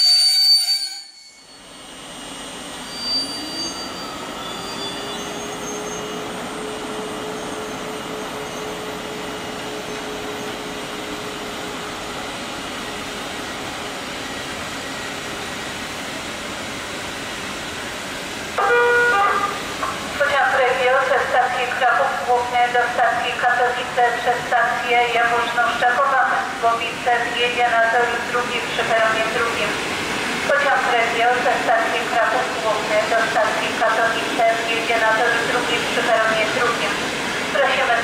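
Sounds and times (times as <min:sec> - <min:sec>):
train coaches rumbling: 0:02.0 - 0:38.0
station announcement chime: 0:30.6 - 0:37.0.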